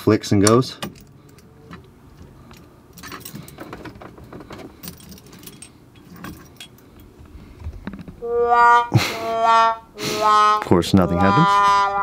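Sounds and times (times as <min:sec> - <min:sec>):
car keys jingling: 0:00.4 - 0:07.3.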